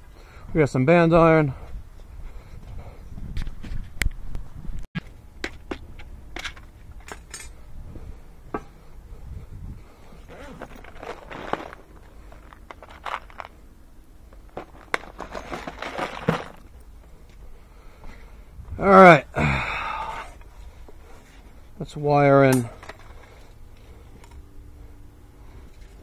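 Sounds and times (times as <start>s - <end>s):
rustling: 9.8s - 18.4s
connectors rattling in plastic case: 10.2s - 13.6s, 14.3s - 16.9s.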